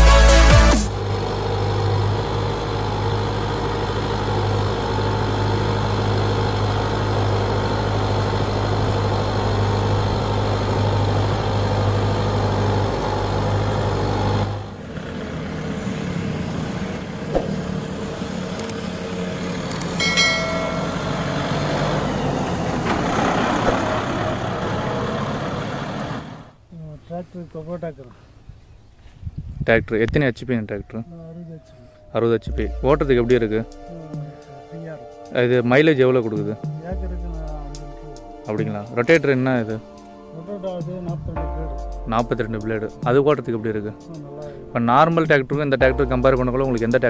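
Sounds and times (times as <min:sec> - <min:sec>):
tractor diesel engine running: 0:00.0 - 0:26.7, 0:31.4 - 0:34.4, 0:35.0 - 0:40.3
lighter noisier engine: 0:00.1 - 0:26.7
brief high tone: 0:20.0 - 0:21.5.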